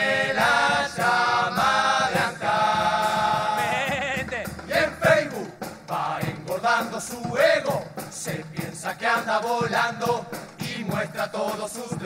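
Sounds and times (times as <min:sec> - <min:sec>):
chorus singing in harmony: 0:00.0 - 0:12.0.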